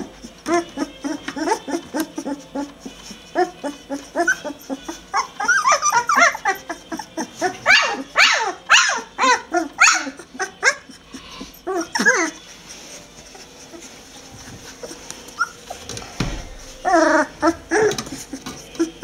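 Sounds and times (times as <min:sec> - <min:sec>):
puppies yelping and whining: 0:00.0 - 0:19.0.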